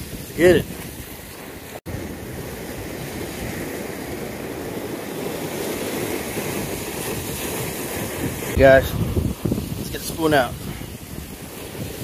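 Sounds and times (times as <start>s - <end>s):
sea waves washing: 0.0s - 12.0s
wind buffeting microphone: 0.0s - 12.0s.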